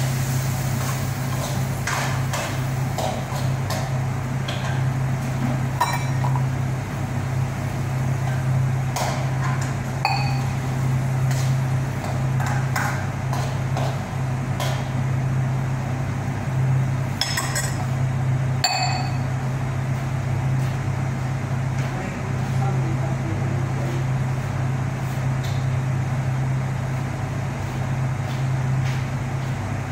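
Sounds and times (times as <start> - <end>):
steady low hum: 0.0 - 29.9
metal cookware clinking: 5.8 - 6.4, 10.1 - 10.5, 18.6 - 19.2.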